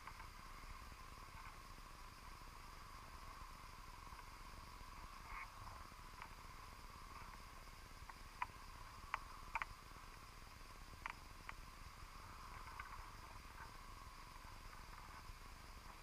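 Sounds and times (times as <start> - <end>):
faint underwater hiss: 0.0 - 16.0.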